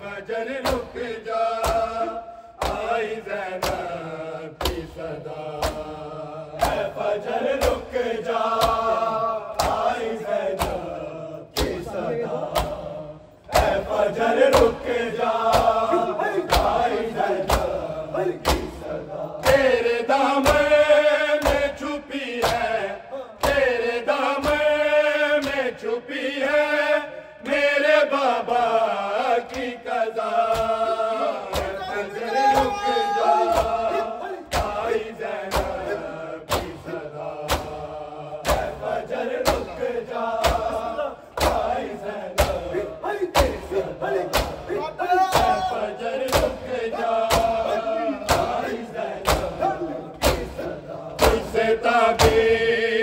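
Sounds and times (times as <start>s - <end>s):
men chanting a lament: 0.0s - 53.0s
hands beating on chests: 40.4s - 41.8s, 44.3s - 46.6s, 47.2s - 50.6s.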